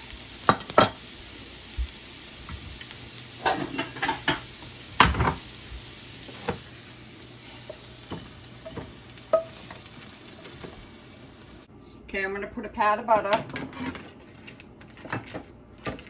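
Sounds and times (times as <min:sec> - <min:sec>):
utensil scraping frying pan: 0:03.4 - 0:05.6, 0:13.4 - 0:15.2.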